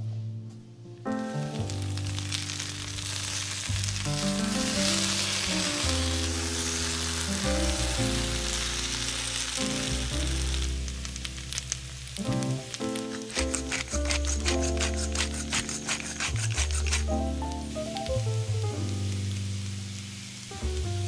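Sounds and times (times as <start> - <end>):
potatoes sizzling in oil: 1.4 - 21.0
spatula turning food in pan: 1.6 - 18.1.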